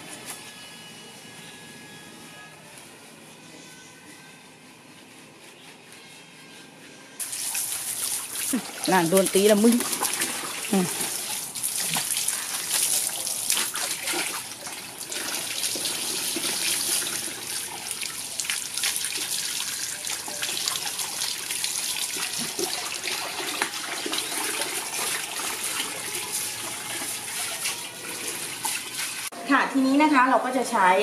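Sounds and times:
water splashing in plastic tub: 0:07.2 - 0:29.3.

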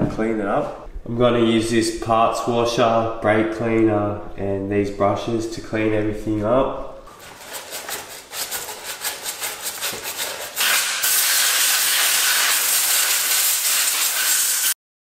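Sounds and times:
rasping strokes: 0:07.1 - 0:14.8
aerosol can spraying hiss: 0:10.4 - 0:14.8.

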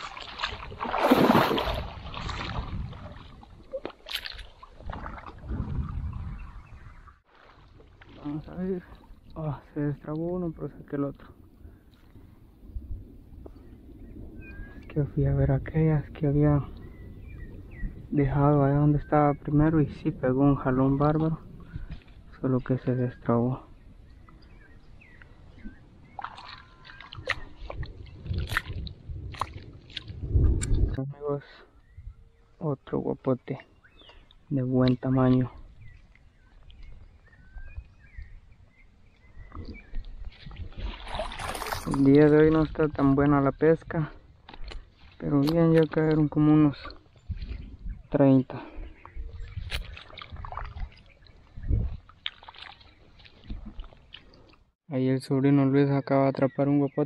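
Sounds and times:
fish splashing in water: 0:00.0 - 0:05.5, 0:26.1 - 0:30.2, 0:40.4 - 0:42.0
water sloshing and splashing: 0:00.0 - 0:13.6, 0:20.6 - 0:31.0, 0:33.2 - 0:54.8
reeds and grass rustling: 0:39.4 - 0:47.9.

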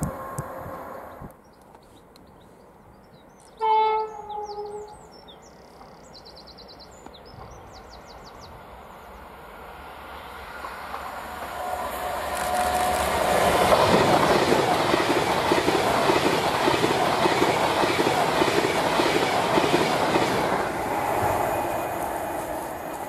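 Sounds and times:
birds chirping: 0:00.8 - 0:09.5
two-tone train horn: 0:03.6 - 0:05.0
train rumble: 0:07.0 - 0:23.0.

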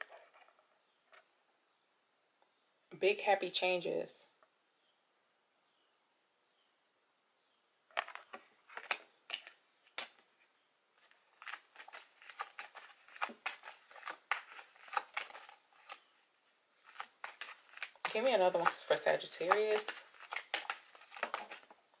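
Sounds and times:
cards being shuffled: 0:08.0 - 0:10.3, 0:11.0 - 0:16.2, 0:16.8 - 0:22.0.

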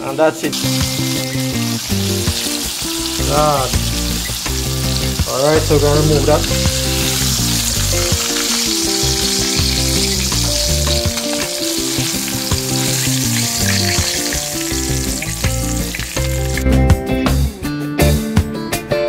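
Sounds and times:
background music: 0:00.0 - 0:19.0
fish deep-frying in oil: 0:00.5 - 0:16.7
metal tongs turning food: 0:00.6 - 0:16.6.

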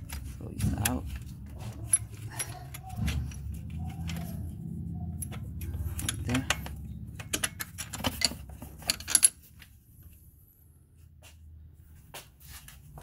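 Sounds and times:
metal tools clinking and clicking: 0:00.0 - 0:09.8.

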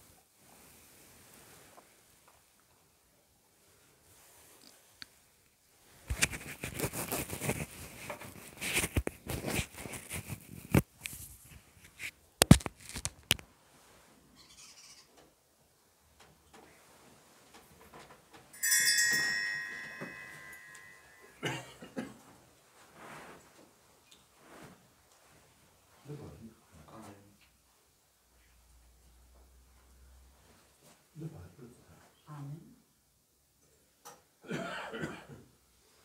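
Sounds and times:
bright bell chime: 0:18.6 - 0:21.4
clinks of metal vessels: 0:18.6 - 0:21.4.

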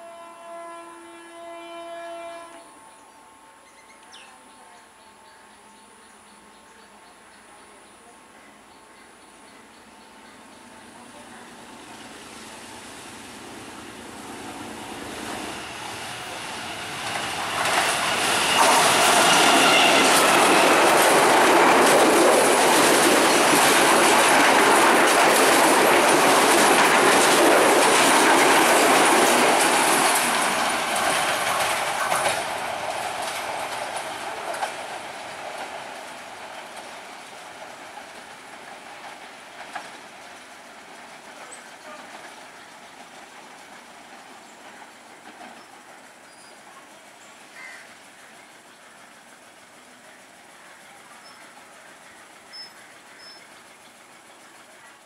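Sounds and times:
diesel locomotive at full throttle: 0:10.4 - 0:55.0
train wheels clattering over rail joints: 0:11.2 - 0:47.2.

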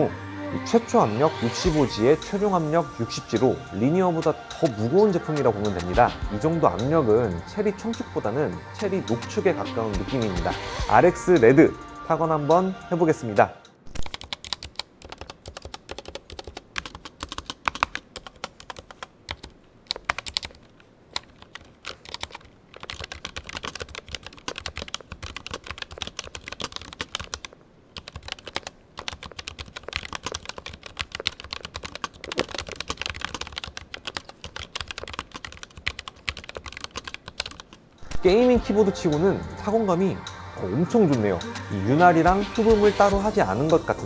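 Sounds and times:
mechanical keyboard typing: 0:13.9 - 0:37.8.

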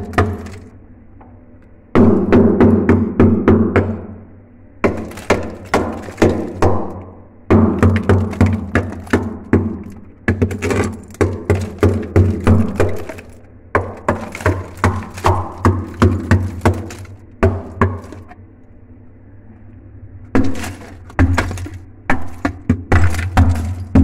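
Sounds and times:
hammer knocking ice: 0:00.0 - 0:00.7, 0:04.8 - 0:18.3, 0:20.4 - 0:24.0.

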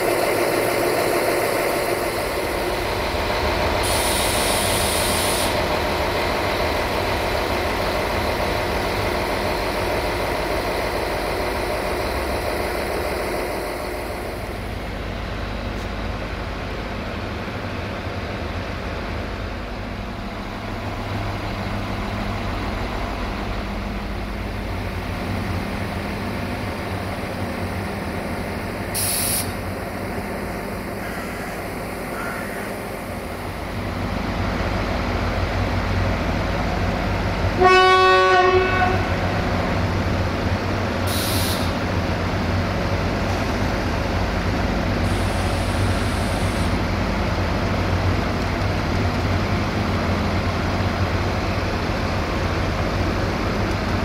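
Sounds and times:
diesel railcar engine drone: 0:00.0 - 0:54.0
brief hisses: 0:03.8 - 0:05.6, 0:29.0 - 0:29.6, 0:41.1 - 0:41.8
train horn blast: 0:37.6 - 0:39.4.

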